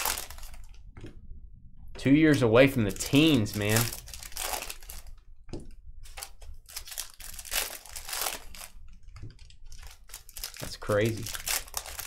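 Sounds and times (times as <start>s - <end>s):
wrappers crinkling and tearing: 0.0s - 0.8s, 2.8s - 5.2s, 6.0s - 12.0s.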